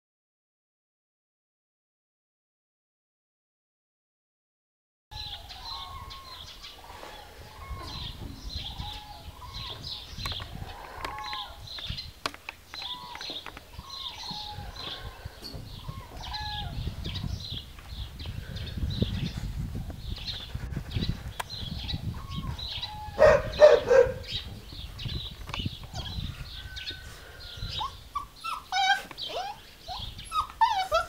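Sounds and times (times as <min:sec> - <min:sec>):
animal chirps and squeaks: 0:05.2 - 0:11.6, 0:27.7 - 0:31.0.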